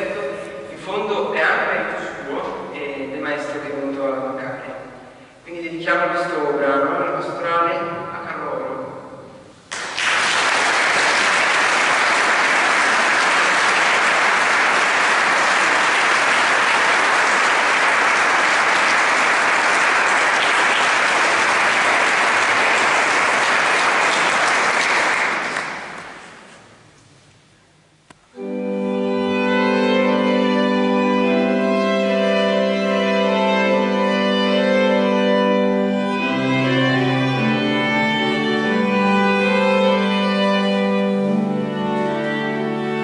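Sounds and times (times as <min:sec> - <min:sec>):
audience applauding: 0:09.7 - 0:26.7
violins and organ playing: 0:10.5 - 0:26.1, 0:28.4 - 0:43.0.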